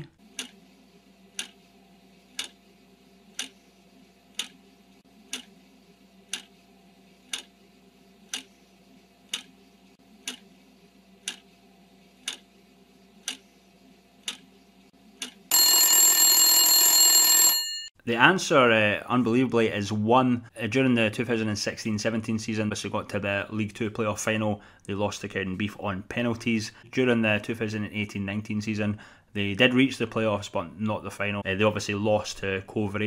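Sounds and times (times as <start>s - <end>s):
clock ticking: 0.3s - 0.6s, 1.4s - 1.6s, 2.3s - 2.6s, 3.3s - 3.6s, 4.3s - 4.6s, 5.3s - 5.5s, 6.3s - 6.5s, 7.3s - 7.5s, 8.3s - 8.5s, 9.3s - 9.6s, 10.2s - 10.5s, 11.2s - 11.5s, 12.2s - 12.4s, 13.2s - 13.4s, 14.2s - 14.4s, 15.2s - 15.7s
loud bell ringing: 15.5s - 17.9s.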